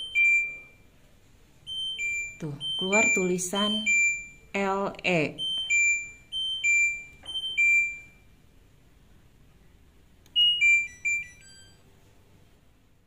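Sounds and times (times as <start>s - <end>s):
washing machine two-note alarm beep: 0.0s - 1.0s, 1.7s - 4.5s, 5.3s - 8.3s, 10.4s - 11.8s
short electronic beeps: 1.7s - 4.4s.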